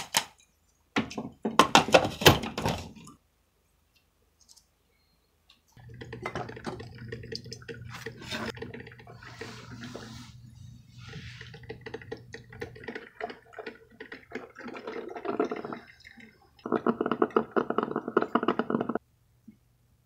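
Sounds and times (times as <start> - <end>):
coffee dripping into carafe: 5.8 - 9.6, 11.4 - 19.0
coffee maker gurgling: 5.8 - 19.0.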